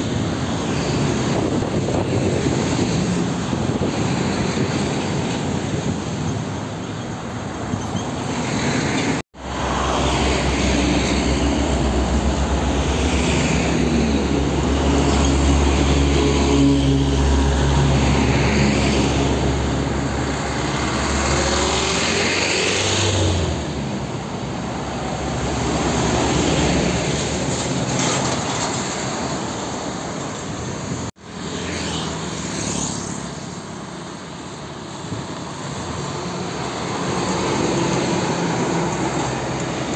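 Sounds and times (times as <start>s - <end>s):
truck accelerating: 0.0s - 31.6s, 32.5s - 39.9s
heavy trucks passing: 0.0s - 39.9s
tyre and traffic noise: 0.0s - 39.9s.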